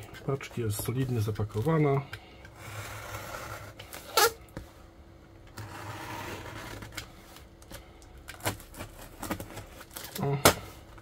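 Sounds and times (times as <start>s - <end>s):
plastic wrapping rustling: 8.3s - 10.4s.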